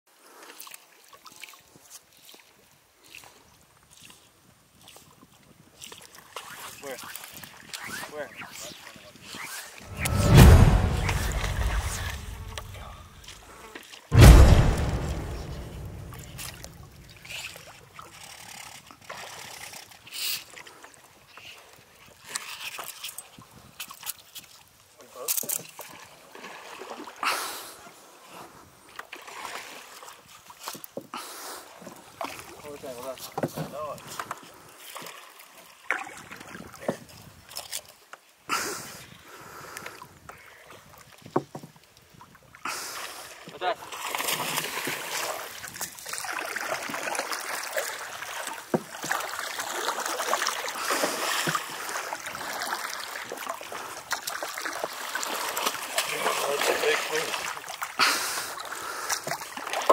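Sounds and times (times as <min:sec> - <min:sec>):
water splashing and sloshing: 0:00.4 - 0:27.2, 0:28.3 - 0:31.0, 0:31.6 - 0:38.4, 0:40.3 - 0:59.9
water splash: 0:09.9 - 0:13.4, 0:14.2 - 0:17.5
sharp knocks: 0:14.2 - 0:17.1.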